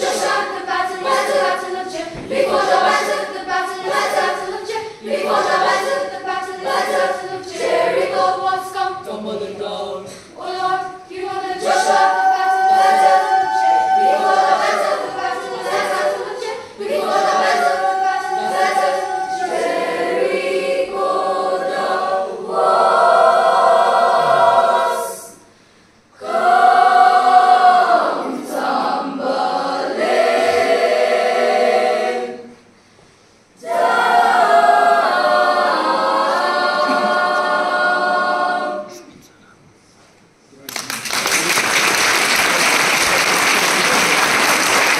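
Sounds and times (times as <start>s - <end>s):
girls' choir singing: 0.0s - 25.5s, 26.2s - 32.7s, 33.6s - 39.1s.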